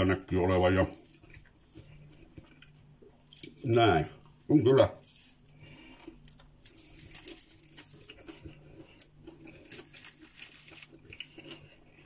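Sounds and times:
aluminium foil crinkling: 0:04.9 - 0:12.0.

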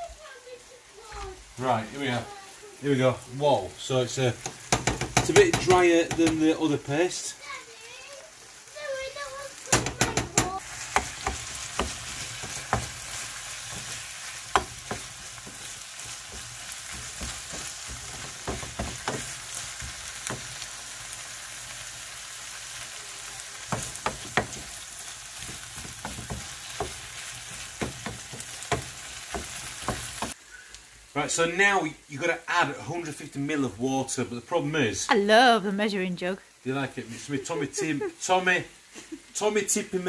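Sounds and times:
food sizzling in a frying pan: 0:00.0 - 0:40.0
wooden spatula scraping a pan: 0:09.8 - 0:20.7, 0:23.7 - 0:30.4.

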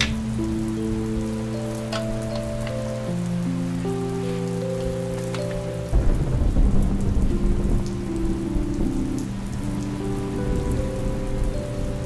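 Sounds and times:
rain hissing: 0:00.0 - 0:12.0
thunder rolling: 0:04.9 - 0:12.0.

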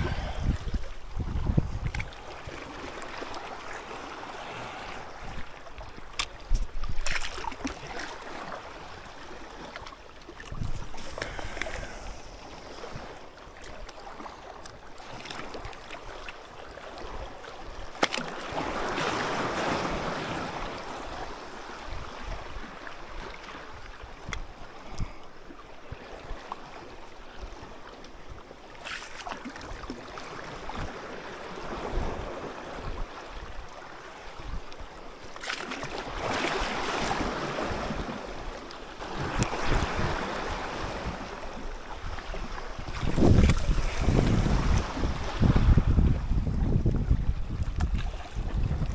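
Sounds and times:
wind buffeting microphone: 0:00.0 - 0:02.6, 0:10.5 - 0:13.1, 0:42.0 - 0:48.9
sea waves washing in: 0:00.0 - 0:23.8, 0:35.2 - 0:48.9.

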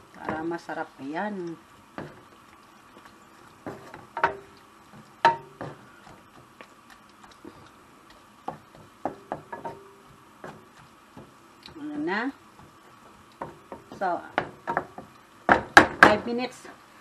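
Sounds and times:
spoon knocking on frying pan: 0:00.1 - 0:00.6, 0:01.9 - 0:02.4, 0:03.6 - 0:06.8, 0:08.1 - 0:11.8, 0:12.5 - 0:16.3.

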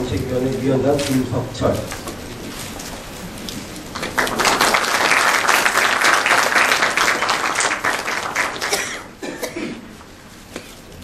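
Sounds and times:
audience applauding: 0:03.9 - 0:09.2.

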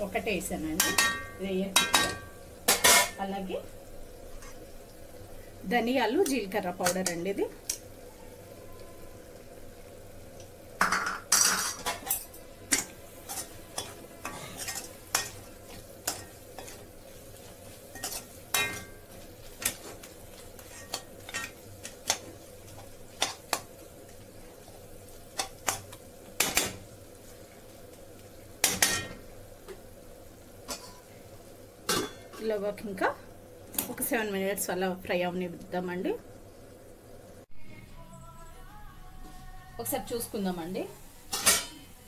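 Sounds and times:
chicken sizzling: 0:00.0 - 0:42.0
metal spoon scraping a pan: 0:00.8 - 0:03.2, 0:10.8 - 0:23.6, 0:41.3 - 0:42.0.

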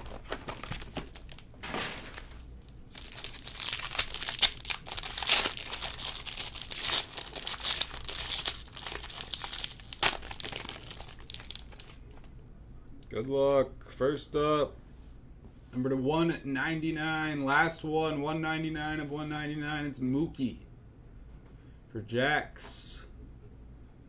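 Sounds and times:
plastic wrapping crinkling and tearing: 0:00.0 - 0:12.3.

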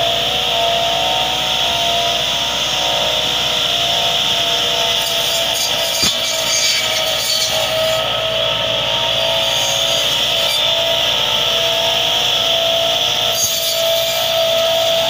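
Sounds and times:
saw blades whining: 0:00.0 - 0:15.0
tractor engine running: 0:00.0 - 0:15.0.

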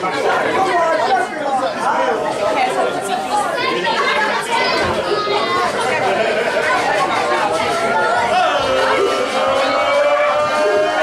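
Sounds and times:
audience murmur: 0:00.0 - 0:11.0
crowd singing long rising notes: 0:07.7 - 0:11.0.

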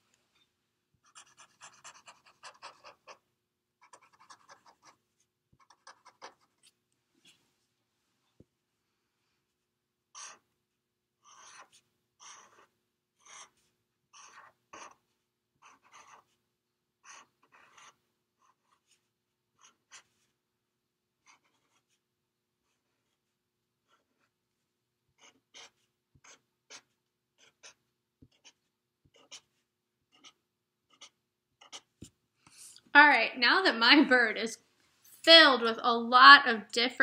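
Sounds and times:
marker scratching on paper: 0:01.0 - 0:03.2, 0:03.8 - 0:07.4, 0:10.1 - 0:10.5, 0:11.2 - 0:16.4, 0:17.0 - 0:20.4, 0:21.2 - 0:24.4, 0:25.1 - 0:32.2.

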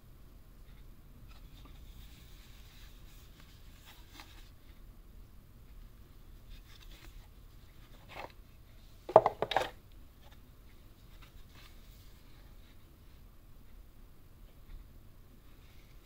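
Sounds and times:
plastic case clacking: 0:09.1 - 0:09.8.

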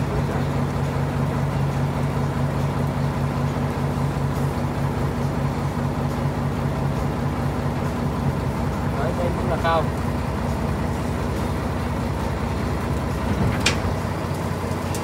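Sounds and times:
tractor engine idling: 0:00.0 - 0:15.0.

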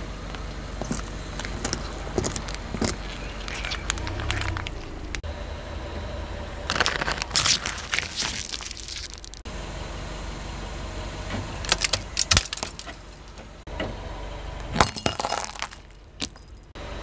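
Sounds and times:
low engine hum: 0:00.0 - 0:17.0
plastic cups crackling under a tyre: 0:00.4 - 0:05.2, 0:06.7 - 0:09.5, 0:11.6 - 0:13.5, 0:14.8 - 0:16.4.

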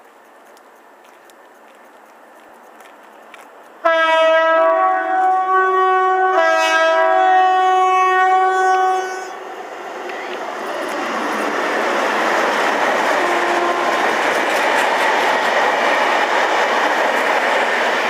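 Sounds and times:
train rumbling: 0:00.0 - 0:18.0
two-tone locomotive horn: 0:03.8 - 0:09.5, 0:13.1 - 0:14.3.

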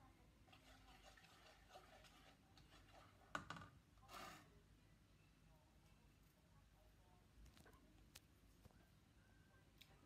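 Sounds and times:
spoon scraping pot: 0:00.5 - 0:04.6.

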